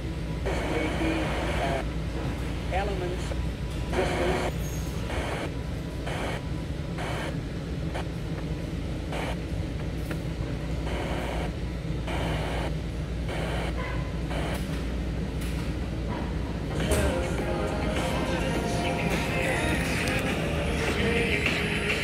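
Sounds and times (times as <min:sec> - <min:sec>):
steady low hum: 0:00.0 - 0:22.0
radio static hiss: 0:00.4 - 0:01.9, 0:02.7 - 0:08.2, 0:09.0 - 0:09.5, 0:10.8 - 0:14.6
snatches of radio stations: 0:04.0 - 0:05.5.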